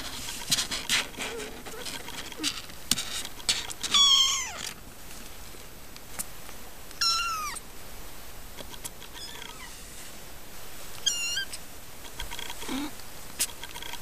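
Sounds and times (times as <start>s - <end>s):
kittens mewing: 3.8s - 4.8s, 7.0s - 7.6s, 9.1s - 9.8s, 11.0s - 11.7s, 12.4s - 13.0s.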